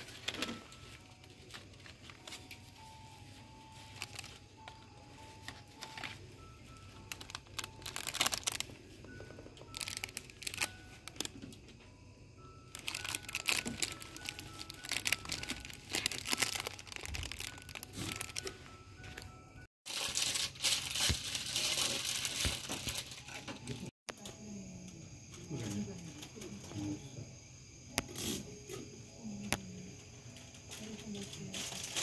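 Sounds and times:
plastic packaging crinkling: 0.0s - 11.4s, 12.7s - 19.3s, 19.9s - 23.9s, 31.2s - 32.0s
faint simple melody: 0.0s - 27.2s.

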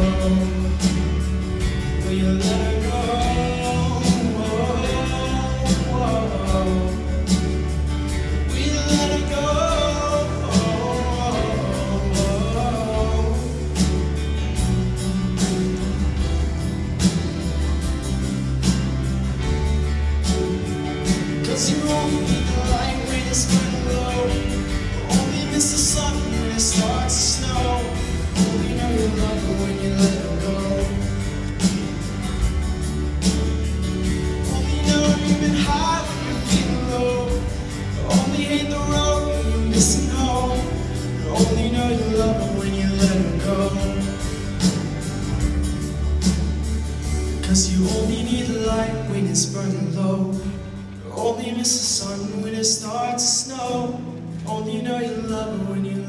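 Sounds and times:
man singing lead: 0.0s - 14.4s, 21.2s - 31.8s, 34.4s - 45.0s, 47.4s - 56.0s
bass: 0.0s - 56.0s
live band playing: 0.0s - 56.0s.

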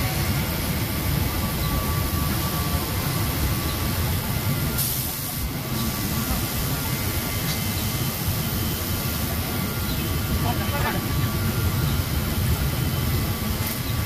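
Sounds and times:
loud air hiss: 0.0s - 13.9s
faint steady whine: 0.0s - 14.0s
industrial machinery rumble: 0.0s - 14.0s.

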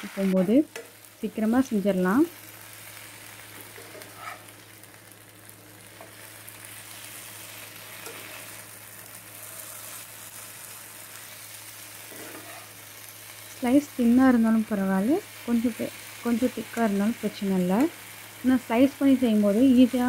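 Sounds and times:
potatoes sizzling in a pan: 0.0s - 20.0s
spatula stirring in a pan: 2.8s - 4.6s, 5.8s - 13.6s.

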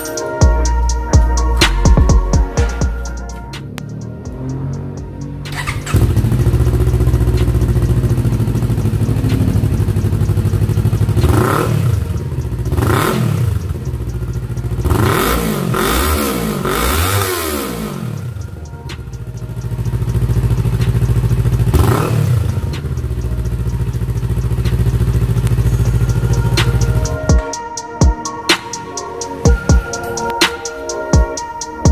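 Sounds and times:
motorcycle engine idling: 0.4s - 28.2s
motorcycle throttle blips: 3.6s - 27.3s.

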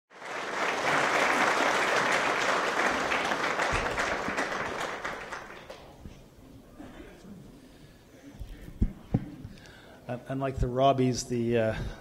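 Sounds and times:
audience applauding: 0.1s - 6.1s.

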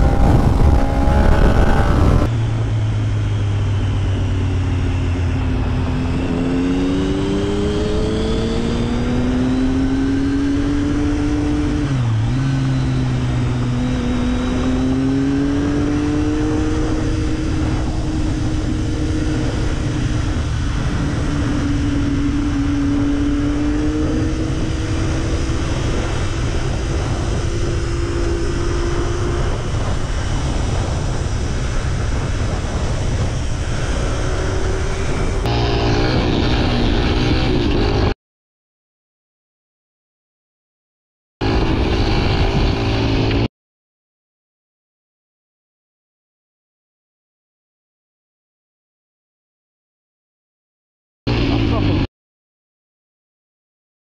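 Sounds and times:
motorcycle engine: 0.0s - 38.2s, 41.4s - 43.5s
wind and road noise: 0.0s - 38.2s, 41.4s - 43.5s, 51.3s - 52.1s.

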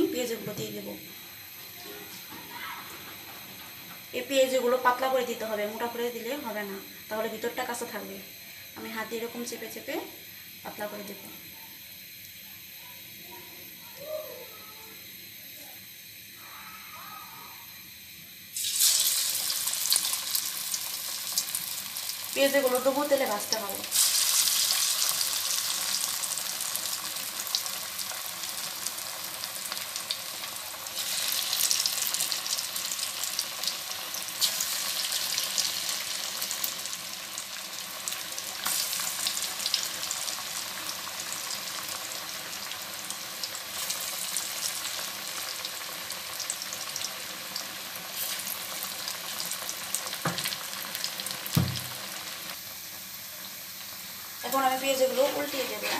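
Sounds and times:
batter deep-frying in oil: 17.9s - 55.9s.

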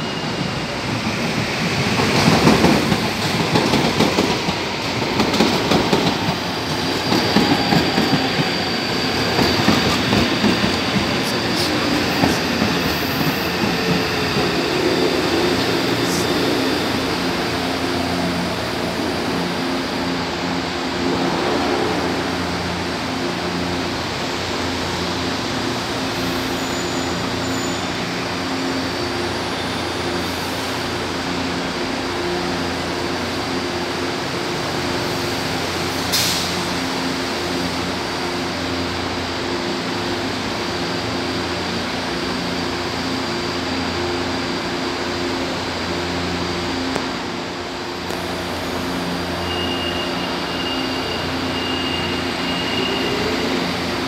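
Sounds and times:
train equipment humming: 0.1s - 24.9s
station noise: 2.2s - 24.2s.

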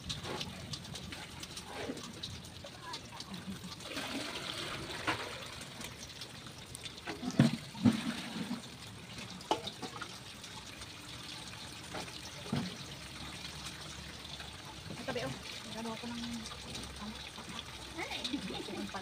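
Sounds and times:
water splashing into metal basin: 0.0s - 19.0s
pots and buckets knocking: 7.1s - 8.7s.

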